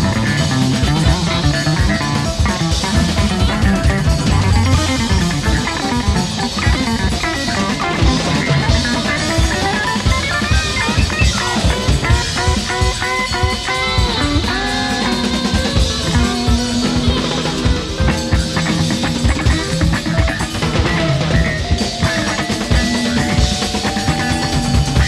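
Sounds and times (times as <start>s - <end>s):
busy drum kit: 0.0s - 25.0s
electric guitar with bending notes: 0.0s - 25.0s.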